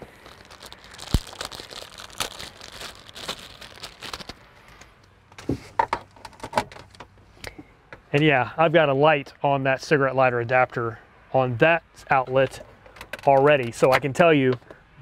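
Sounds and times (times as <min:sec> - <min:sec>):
hands rustling: 0:00.0 - 0:04.9.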